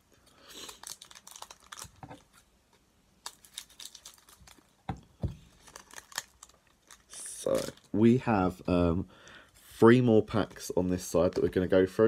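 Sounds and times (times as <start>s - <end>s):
cards and foil wrapper rustling: 0.3s - 2.4s, 3.2s - 4.8s, 5.4s - 8.2s.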